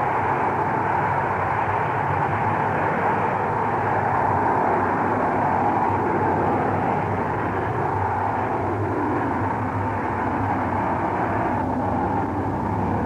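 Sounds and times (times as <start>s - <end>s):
rocket engines rumbling: 0.0s - 13.0s.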